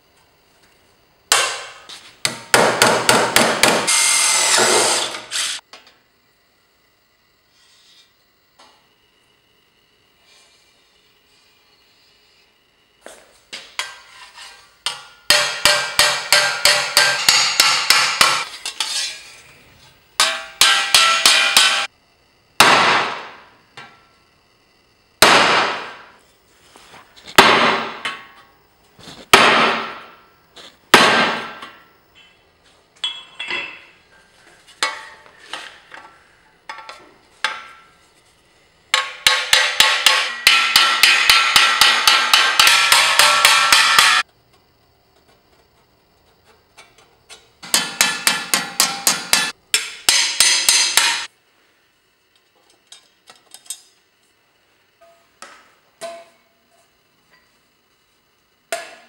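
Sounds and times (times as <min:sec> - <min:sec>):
heavy blows ringing in metal: 0:39.3 - 0:44.2.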